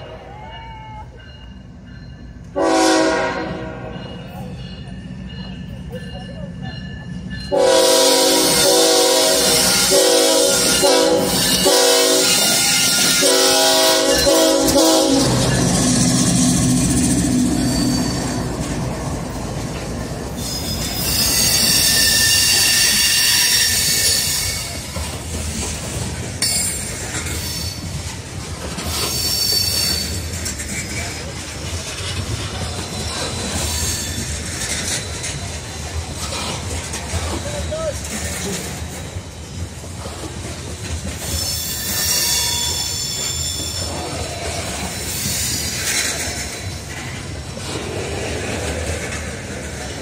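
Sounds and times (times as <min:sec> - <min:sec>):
train cars rolling by: 0:00.0 - 0:50.0
wheels squealing on rails: 0:00.0 - 0:50.0
train air horn blasts: 0:02.6 - 0:04.0, 0:07.5 - 0:16.0
locomotive engine drone: 0:03.4 - 0:21.9.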